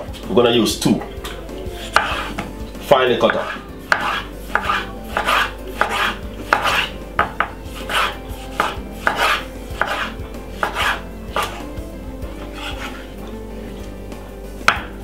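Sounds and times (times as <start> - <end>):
knife knocking on wooden board: 1.8 - 2.5, 3.3 - 11.6, 14.7 - 15.0.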